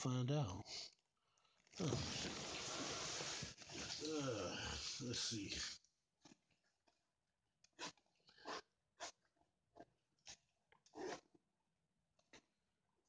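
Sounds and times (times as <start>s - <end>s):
zipper rasping scrapes: 9.8s - 11.4s.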